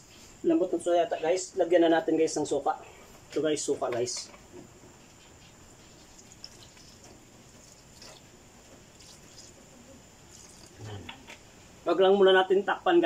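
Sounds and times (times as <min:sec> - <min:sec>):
liquid trickling and dripping: 0:05.8 - 0:10.8.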